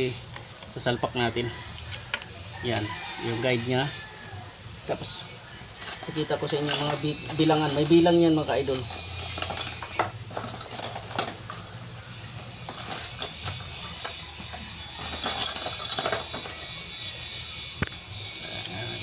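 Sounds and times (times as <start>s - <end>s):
metallic chain clinks: 5.9s - 19.0s.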